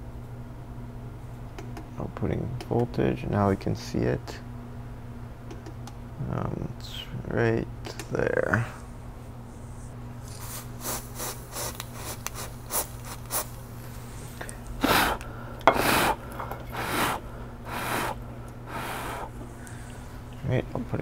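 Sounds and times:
electrical hum: 0.0s - 21.0s
aerosol spray hissing: 10.4s - 13.5s, 16.8s - 19.3s.

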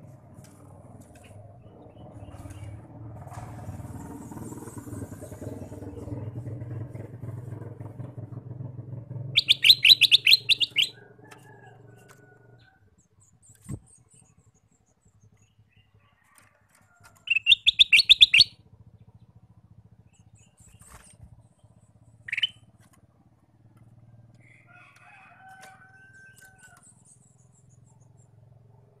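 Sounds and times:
bird chattering song: 9.4s - 11.8s, 17.2s - 19.2s, 20.0s - 22.8s.

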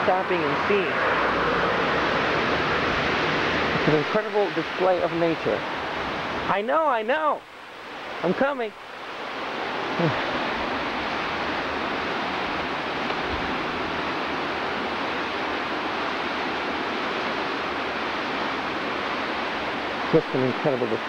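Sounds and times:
stream cascading over rocks: 0.0s - 21.0s.

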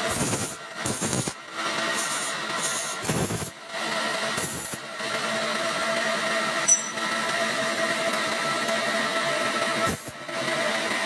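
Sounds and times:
welding torch crackling: 0.0s - 1.4s, 2.0s - 3.6s, 4.4s - 4.8s, 9.9s - 10.2s.

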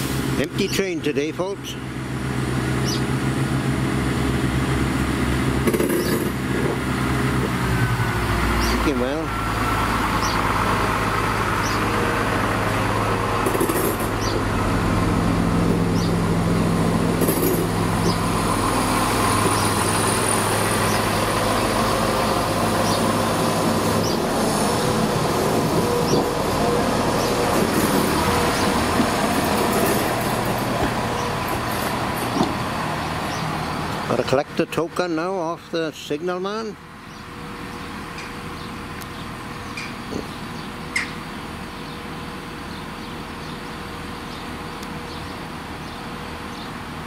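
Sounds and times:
diesel train engine hum: 0.0s - 47.0s
train rolling on track: 0.0s - 47.0s.

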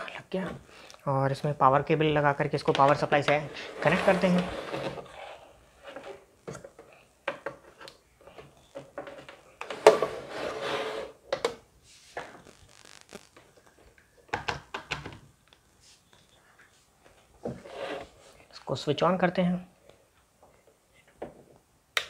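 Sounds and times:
rubbing and scraping: 2.9s - 6.3s, 9.0s - 11.2s, 15.8s - 18.5s.

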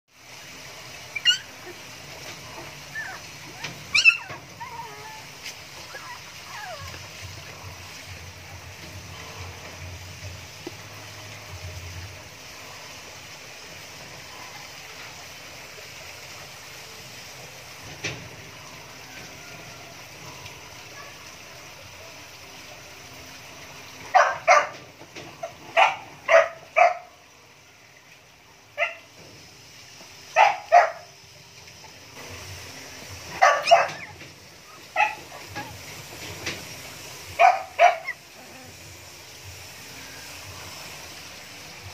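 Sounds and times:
puppies squeaking and yipping: 1.0s - 1.9s, 2.6s - 7.2s, 33.4s - 35.8s, 37.4s - 38.7s.

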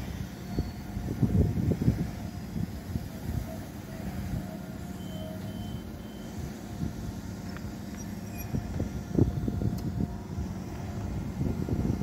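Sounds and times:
faint high squeal: 0.0s - 1.0s, 2.0s - 6.7s, 7.5s - 9.3s
train rolling slowly: 0.0s - 12.0s.

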